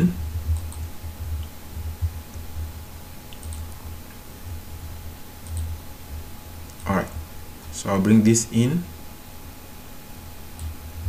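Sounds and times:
steady low hum: 0.0s - 11.0s
computer mouse clicks: 0.5s - 1.5s, 3.3s - 3.8s, 5.4s - 5.7s.

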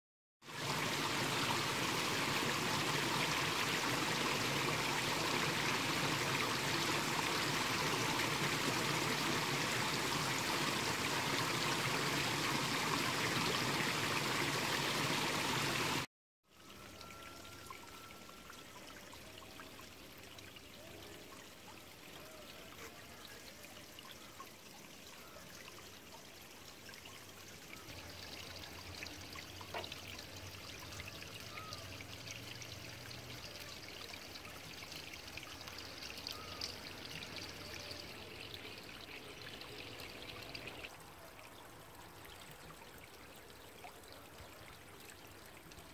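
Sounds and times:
soft water sound: 0.4s - 45.9s
stream rushing over gravel: 0.5s - 16.1s.

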